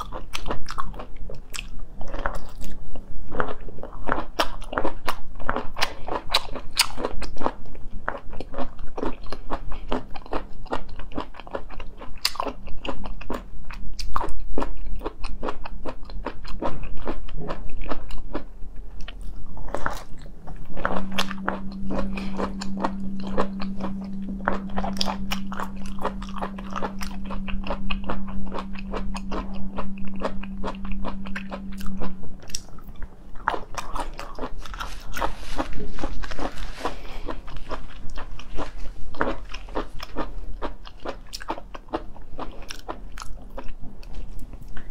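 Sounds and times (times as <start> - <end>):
biting and chewing food: 0.0 - 44.9
steady low hum: 16.9 - 44.9.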